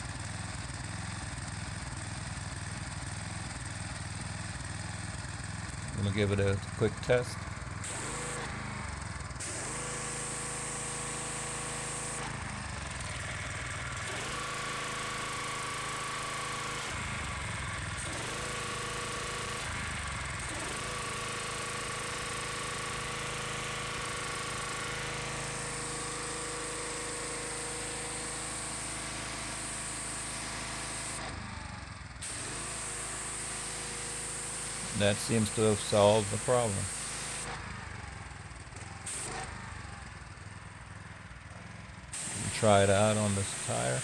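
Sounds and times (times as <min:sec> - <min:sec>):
pressure washer engine running: 0:00.0 - 0:44.0
water jet hissing: 0:34.9 - 0:37.5, 0:42.2 - 0:44.0.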